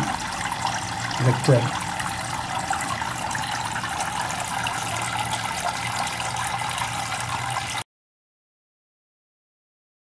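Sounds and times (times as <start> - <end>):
low pump hum: 0.0 - 7.8
water trickling: 0.0 - 7.8.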